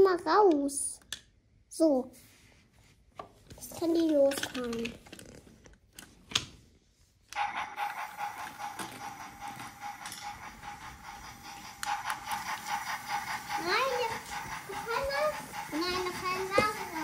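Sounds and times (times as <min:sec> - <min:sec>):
toy train motor gear whine: 0:07.4 - 0:17.0.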